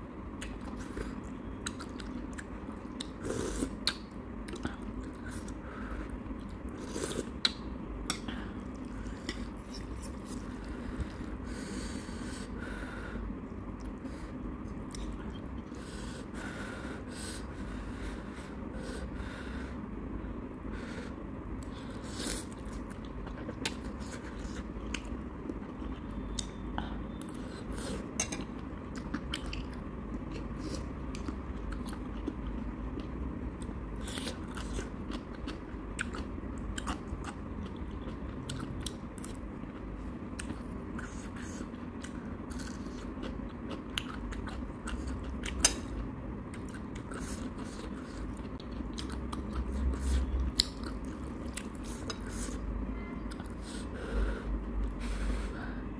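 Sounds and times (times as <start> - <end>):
person slurping and chewing noodles: 0.4 - 12.6, 20.8 - 52.6.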